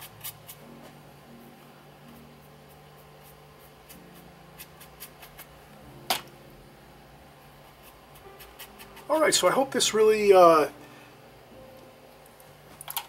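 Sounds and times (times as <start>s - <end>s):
faint steady hum: 0.0s - 13.0s
paintbrush scratching on paper: 2.1s - 5.5s, 7.6s - 9.5s.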